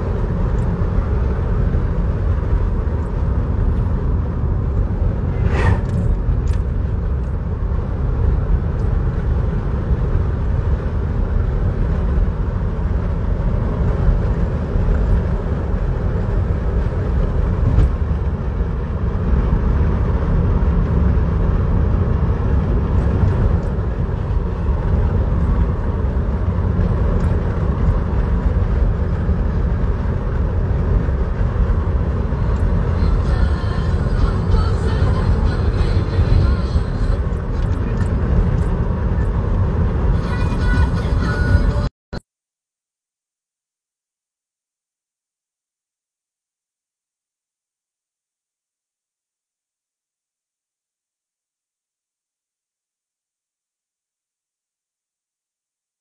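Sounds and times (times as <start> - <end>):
road and engine rumble in car: 0.0 - 41.9
brief sharp sound: 5.3 - 6.2.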